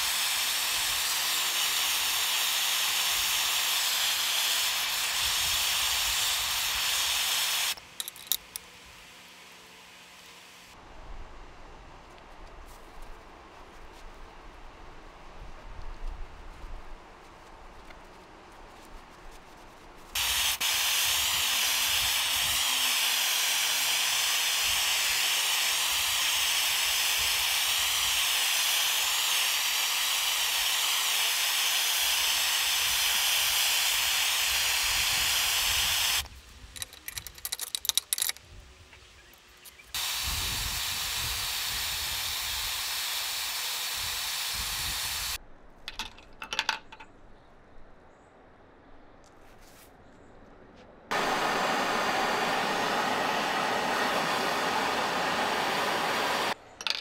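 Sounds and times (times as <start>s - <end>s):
gas torch flame hissing: 0.0s - 8.3s, 20.1s - 36.3s, 39.9s - 45.4s, 51.1s - 56.6s.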